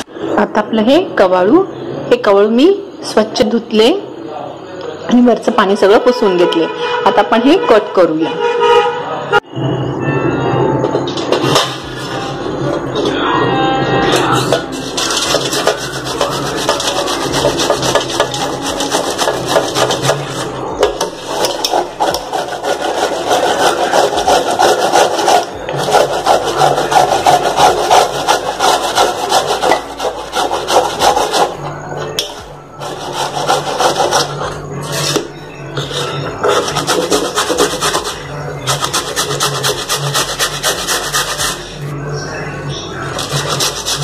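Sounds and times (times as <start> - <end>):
grater rasping: 14.6 - 31.6, 32.8 - 34.6, 35.8 - 41.8, 43.1 - 44.0.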